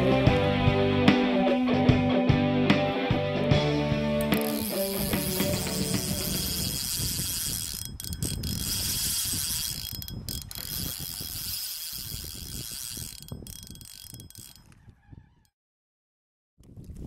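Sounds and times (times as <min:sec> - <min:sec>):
fishing reel drag clicking: 0:04.2 - 0:14.8.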